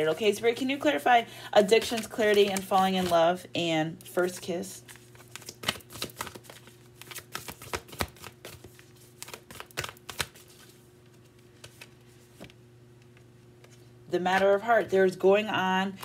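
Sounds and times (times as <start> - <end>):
cards being shuffled: 1.6 - 3.2, 4.0 - 13.9.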